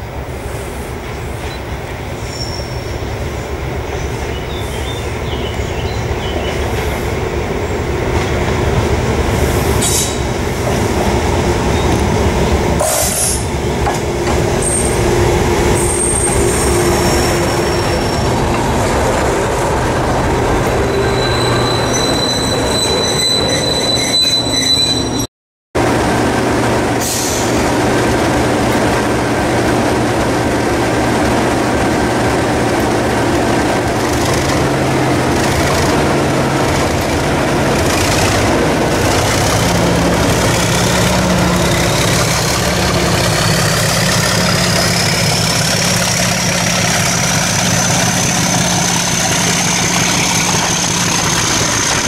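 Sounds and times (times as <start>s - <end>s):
diesel locomotive engine: 0.0s - 52.0s
high wheel squeals: 2.2s - 3.2s, 15.7s - 18.5s, 20.6s - 25.3s, 37.8s - 52.0s.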